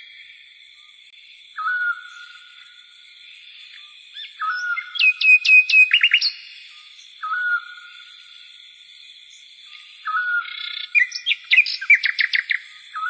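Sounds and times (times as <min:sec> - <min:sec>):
songbird singing: 0:00.0 - 0:13.0.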